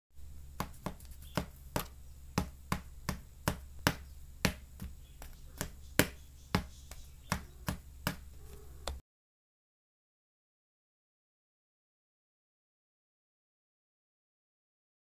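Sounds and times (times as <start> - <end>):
steady low hum: 0.2 - 9.0.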